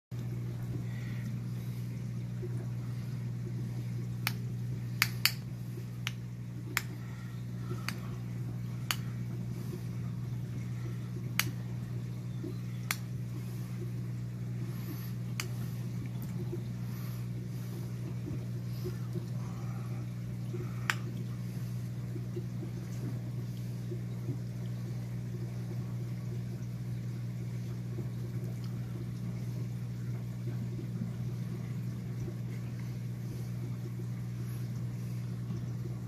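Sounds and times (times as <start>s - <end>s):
steady low hum: 0.1s - 36.0s.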